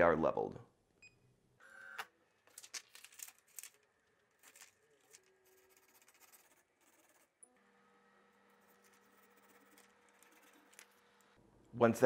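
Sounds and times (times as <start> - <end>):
paper rustling and crinkling: 2.4 - 7.2.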